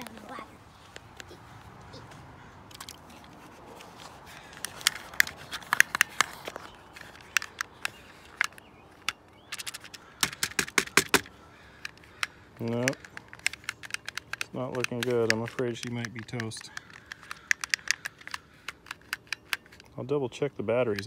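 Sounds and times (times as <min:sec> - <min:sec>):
plastic toy clicks and scrapes: 0:04.5 - 0:19.9.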